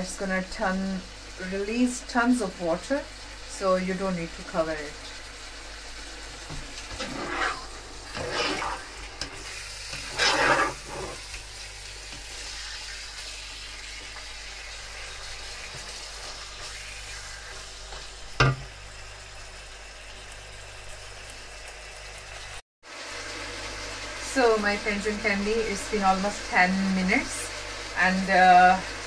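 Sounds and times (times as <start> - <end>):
chicken sizzling in a wok: 0.0 - 29.0
spatula scraping wok: 6.7 - 13.3.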